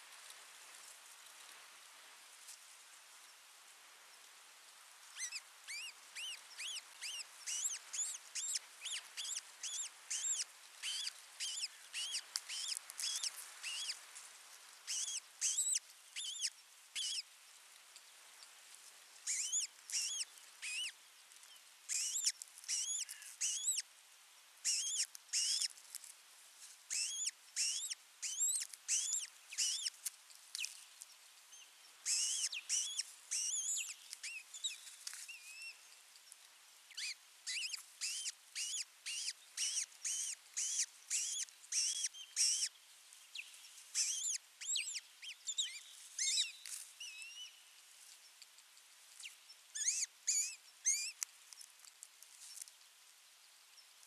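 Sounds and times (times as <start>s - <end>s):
ospreys whistled chirps: 32.1s - 33.8s.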